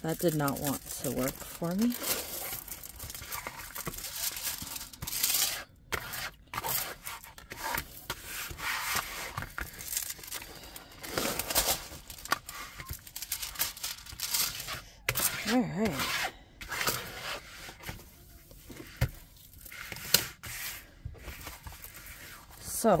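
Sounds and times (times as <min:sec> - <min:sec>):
plastic packaging rustling: 0:00.0 - 0:16.0, 0:21.1 - 0:23.0.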